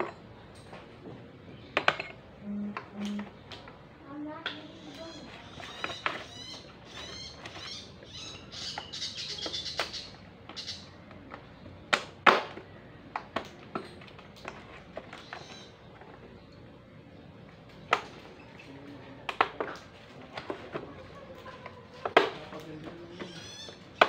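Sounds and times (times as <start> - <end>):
high chirping: 4.7 - 11.0.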